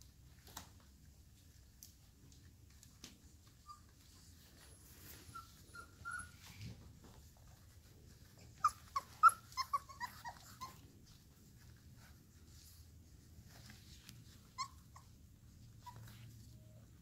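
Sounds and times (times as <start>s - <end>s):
puppy whines: 3.4s - 12.1s, 14.2s - 17.0s
puppies yelping: 8.4s - 10.9s.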